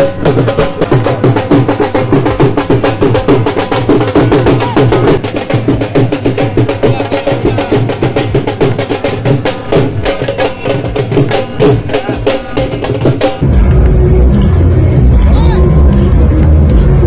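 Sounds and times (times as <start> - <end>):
fast drum beating: 0.0 - 17.0.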